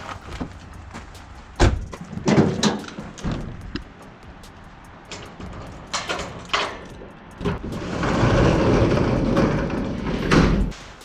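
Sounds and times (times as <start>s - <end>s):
metal roll-up door rattling: 1.7s - 3.7s, 5.0s - 10.8s.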